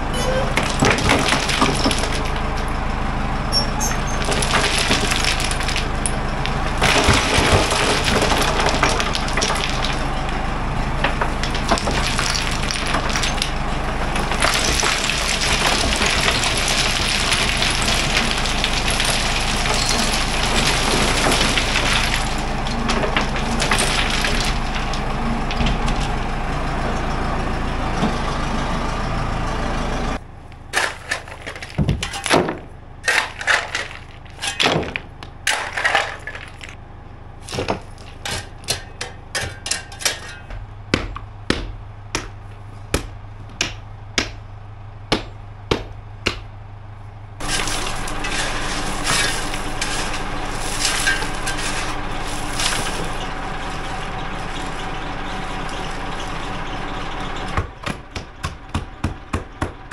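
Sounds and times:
backhoe engine running: 0.0s - 59.9s
crushed stone pouring: 0.5s - 2.8s, 4.1s - 25.1s, 30.6s - 36.8s, 47.4s - 55.2s
shovel scraping stone: 30.8s - 36.8s, 47.4s - 53.2s.

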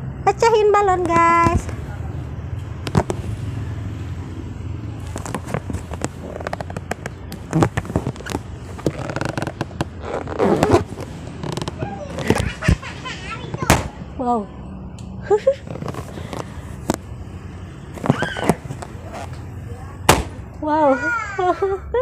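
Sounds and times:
rubber balloons squeaking: 5.1s - 13.9s, 15.5s - 16.9s, 17.9s - 20.4s.

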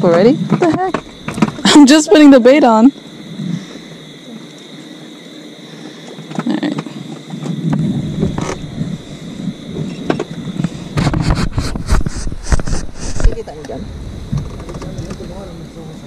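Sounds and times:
faint hum: 0.0s - 16.0s
fishing gear knocking and rattling: 0.5s - 1.9s
low rumble: 13.8s - 16.0s.

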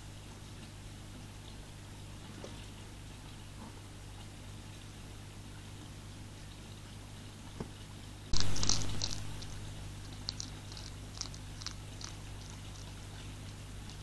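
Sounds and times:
small crunching clicks: 8.3s - 14.0s
hedgehog snuffling: 8.4s - 14.0s.

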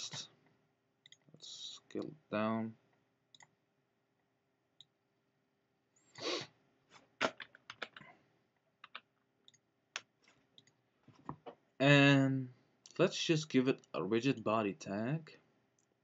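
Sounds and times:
computer mouse clicks: 3.3s - 3.5s, 8.8s - 10.8s.

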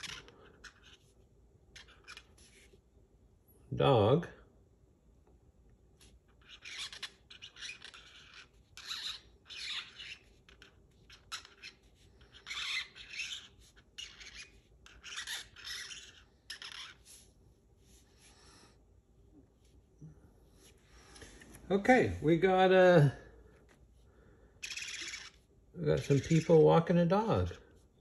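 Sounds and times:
marker scratching on cardboard: 0.0s - 2.8s, 6.0s - 18.5s, 24.6s - 26.7s.

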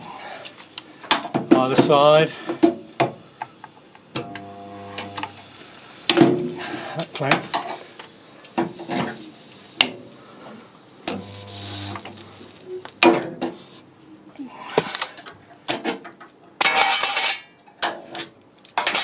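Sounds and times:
spot welder buzz: 4.2s - 5.6s, 11.1s - 12.7s.

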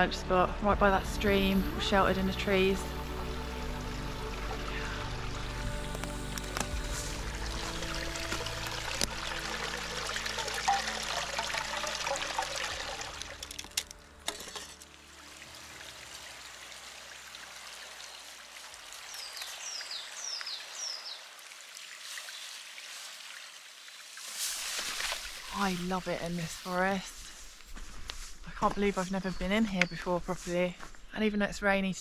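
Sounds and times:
background music: 0.0s - 18.0s
stream trickling: 2.0s - 14.1s, 14.8s - 28.3s
bird chirping: 19.0s - 21.3s.

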